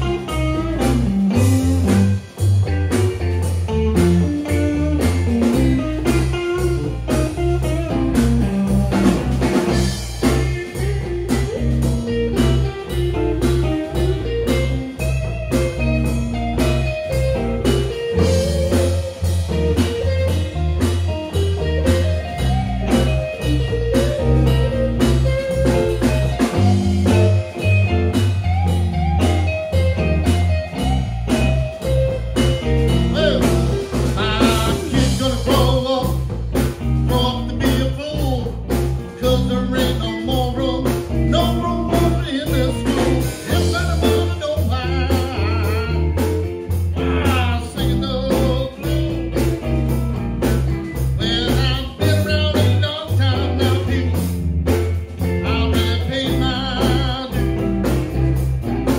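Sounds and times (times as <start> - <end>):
blues band playing live: 0.0 - 58.9
man singing: 33.0 - 36.3, 37.0 - 49.6, 51.2 - 54.3, 55.4 - 57.7.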